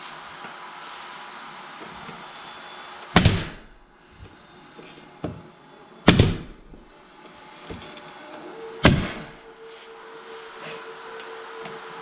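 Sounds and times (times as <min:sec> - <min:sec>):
steady air hiss: 0:00.0 - 0:07.6
pneumatic nail gun bang: 0:03.1 - 0:03.8, 0:06.1 - 0:06.8, 0:08.8 - 0:09.4.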